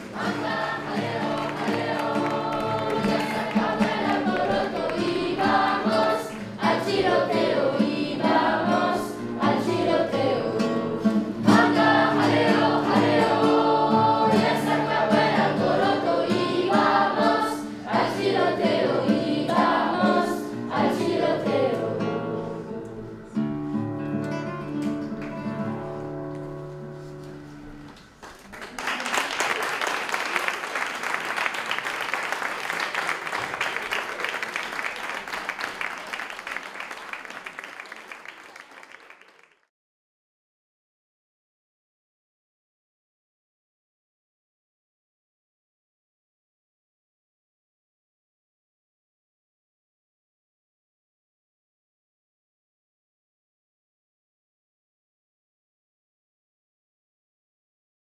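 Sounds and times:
applause: 0.0s - 6.7s, 27.9s - 39.7s
children's choir singing: 0.0s - 23.4s.

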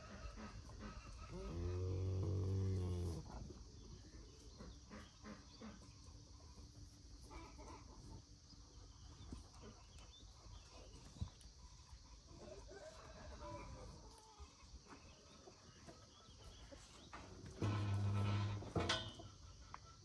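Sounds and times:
cow mooing: 1.3s - 3.2s.

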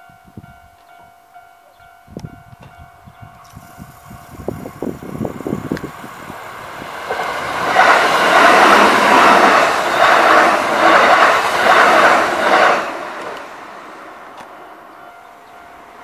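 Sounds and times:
train wheels clattering on rails: 3.4s - 15.2s.

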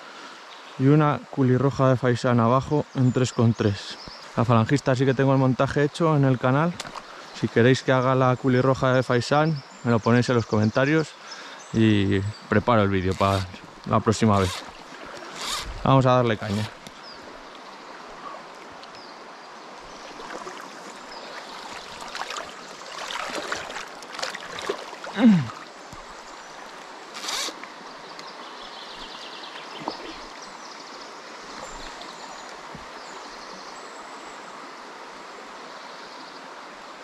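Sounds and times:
river water running over riffle: 10.9s - 28.4s.

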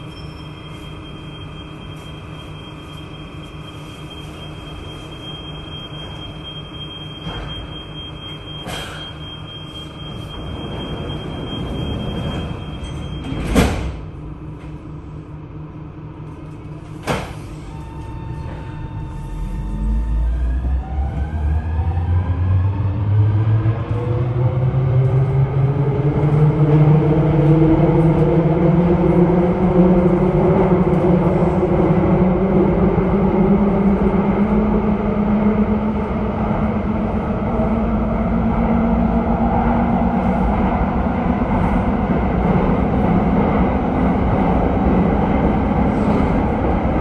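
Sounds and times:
electric train drive whine: 14.2s - 41.2s.

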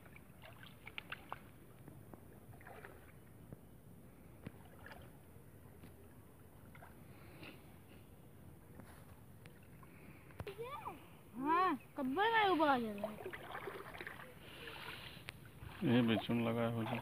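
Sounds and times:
small splashes: 0.0s - 3.4s, 4.3s - 7.6s, 12.3s - 17.0s
shallow water lapping and sloshing: 0.0s - 17.0s.

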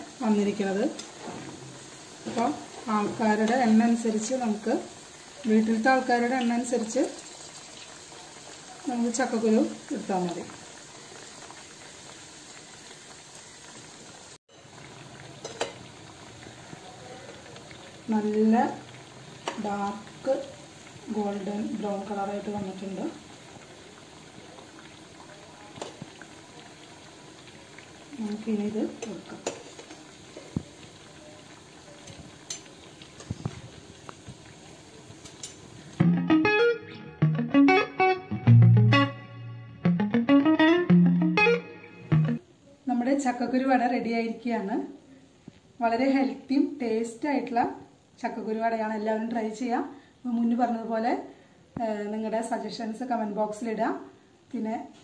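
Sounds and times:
oil sizzling while deep-frying: 0.0s - 36.1s, 42.0s - 55.0s
metal ladle clicking on pan: 15.4s - 15.8s, 29.0s - 30.0s
guitar music: 36.0s - 42.4s.

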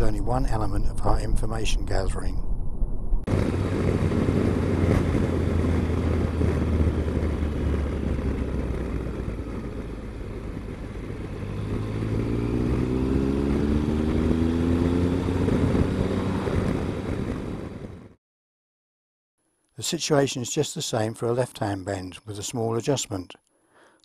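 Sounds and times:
wind rushing: 0.0s - 18.2s
motorcycle engine accelerating: 3.3s - 18.2s.

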